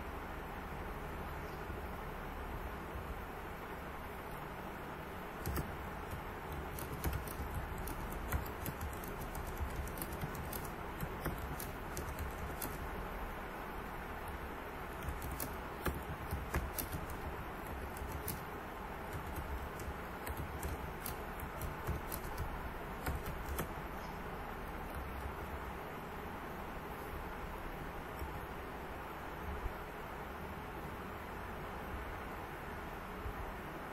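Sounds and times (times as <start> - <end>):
steady background hiss: 0.0 - 33.9
computer keyboard typing: 5.3 - 13.0, 14.2 - 24.0, 24.6 - 25.6, 28.0 - 28.6.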